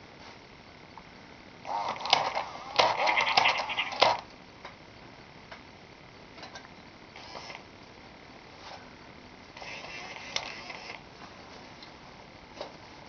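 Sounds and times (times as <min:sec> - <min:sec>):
toy mechanism clicks: 0:01.9 - 0:04.2.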